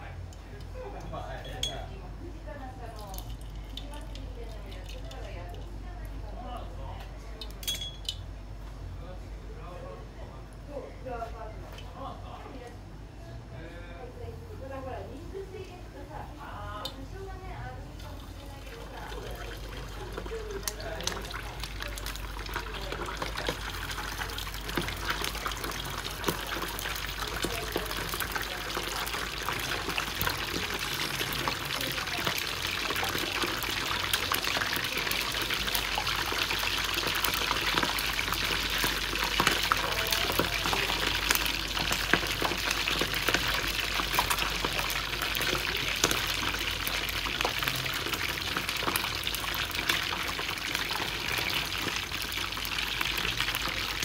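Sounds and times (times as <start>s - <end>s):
fish sizzling in hot oil: 2.6s - 5.8s, 16.1s - 54.0s.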